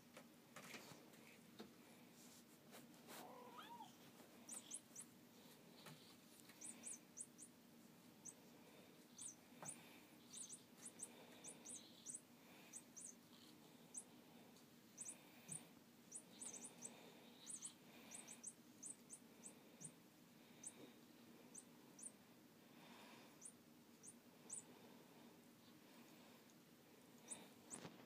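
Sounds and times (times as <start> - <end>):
kitten meowing: 3.2 - 4.0
faint high chirps: 3.2 - 5.1, 5.8 - 7.6, 8.2 - 8.4, 9.0 - 14.2, 14.9 - 22.2, 23.2 - 24.7, 27.2 - 27.9.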